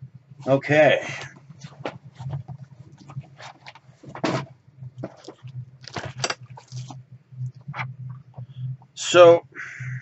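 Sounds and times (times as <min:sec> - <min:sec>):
steady low hum: 0:00.0 - 0:10.0
objects rustling and knocking: 0:01.2 - 0:08.9.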